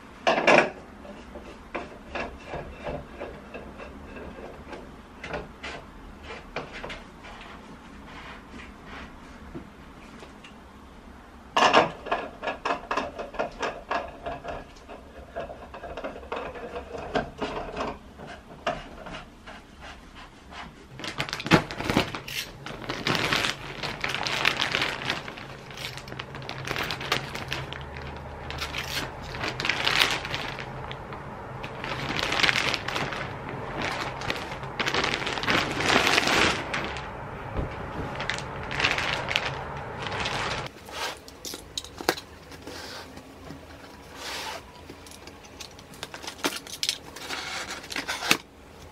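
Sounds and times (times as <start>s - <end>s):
plastic wrapping crinkling: 20.9s - 48.5s.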